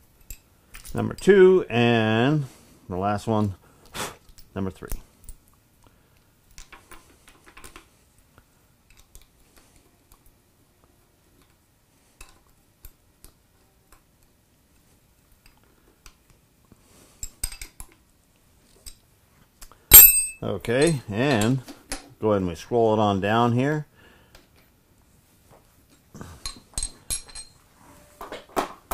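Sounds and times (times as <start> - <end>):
metal wrench clicking and clinking: 17.2 - 18.0, 19.9 - 21.5, 26.4 - 27.6.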